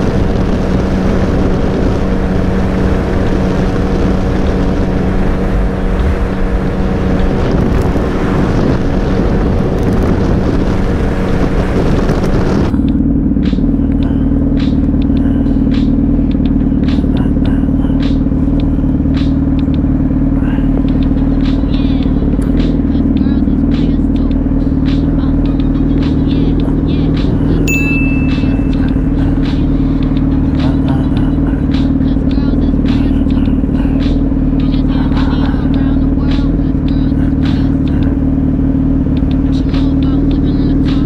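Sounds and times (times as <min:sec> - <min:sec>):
wind rushing over microphone: 0:00.0 - 0:13.8
motorcycle engine running: 0:00.0 - 0:41.0
steady low hum: 0:00.0 - 0:41.0.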